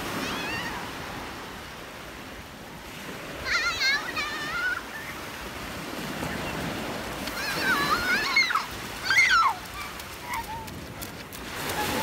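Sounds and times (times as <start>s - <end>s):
surf washing on beach: 0.0s - 12.0s
children shrieking: 3.5s - 5.2s, 7.3s - 10.8s.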